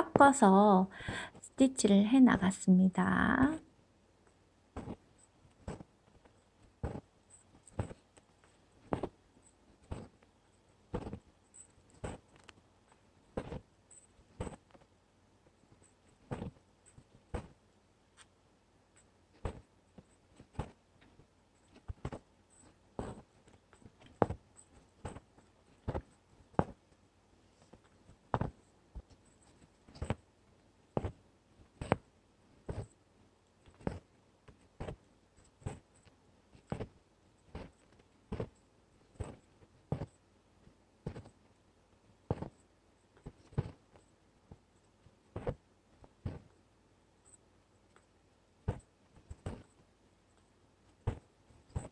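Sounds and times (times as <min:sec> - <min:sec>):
needle piercing fabric: 0:00.0 - 0:27.0, 0:27.6 - 0:33.0, 0:33.6 - 0:40.3, 0:41.0 - 0:41.6, 0:42.2 - 0:49.9, 0:50.8 - 0:51.9.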